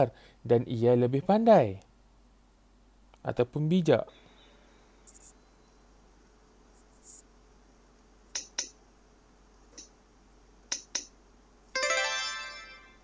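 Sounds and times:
plucked musical chord: 0:11.8 - 0:13.0.

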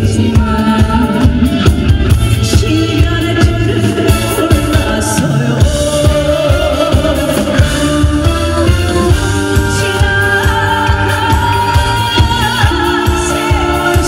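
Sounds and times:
music with steady drum beat: 0:00.0 - 0:14.0
woman singing into microphone: 0:00.0 - 0:14.0.

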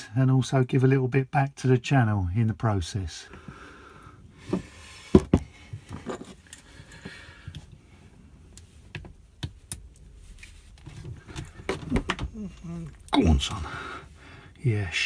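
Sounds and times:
hands clicking and knocking plastic: 0:08.9 - 0:10.1, 0:10.8 - 0:12.4.

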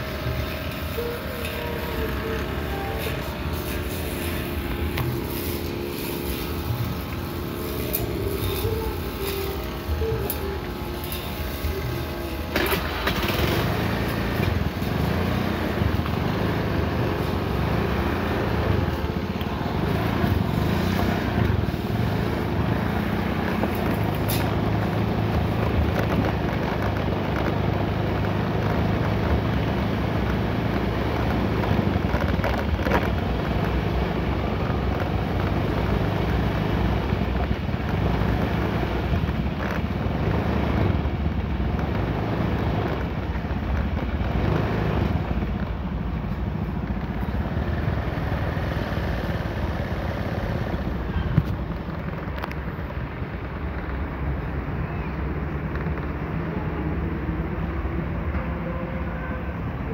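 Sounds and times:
brush cutter engine running: 0:00.0 - 0:41.0.

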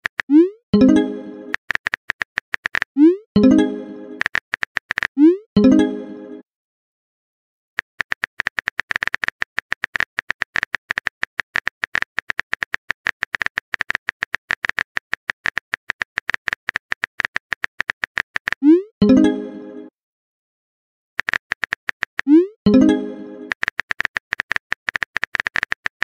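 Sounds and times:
phone keyboard typing clicks: 0:00.0 - 0:03.0, 0:04.2 - 0:05.2, 0:07.8 - 0:18.7, 0:21.2 - 0:22.3, 0:23.4 - 0:26.0.

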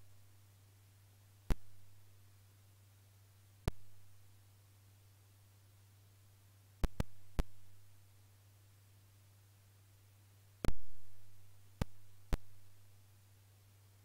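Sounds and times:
low electrical hum: 0:00.0 - 0:14.0
computer mouse clicks: 0:06.8 - 0:07.5.

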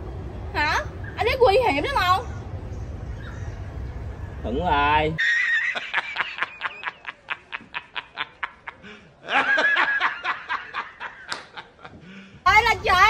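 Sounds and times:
man laughing heartily: 0:05.2 - 0:12.1.

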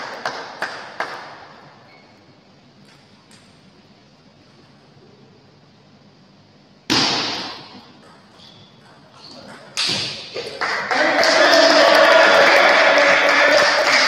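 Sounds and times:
loud thuds ringing in hall: 0:06.9 - 0:07.8.

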